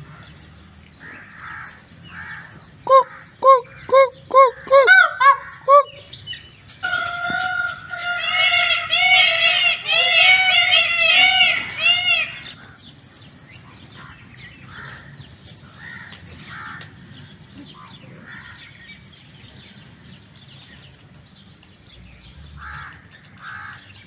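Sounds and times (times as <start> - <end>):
peafowl calling: 1.4 - 12.8.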